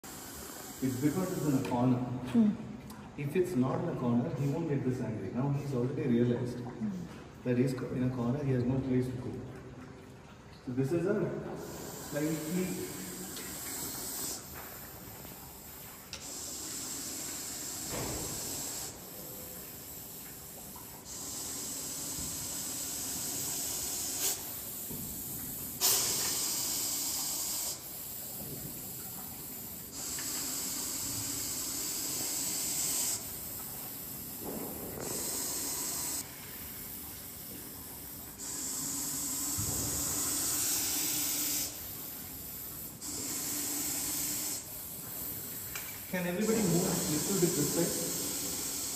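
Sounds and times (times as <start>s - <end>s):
snake hissing: 30.0s - 33.3s, 34.4s - 36.2s
snake breathing: 34.5s - 36.2s.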